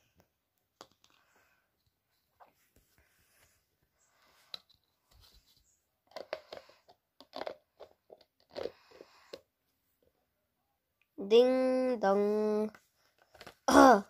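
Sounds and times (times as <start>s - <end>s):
rustling and crunching handling noise: 12.7s - 13.7s.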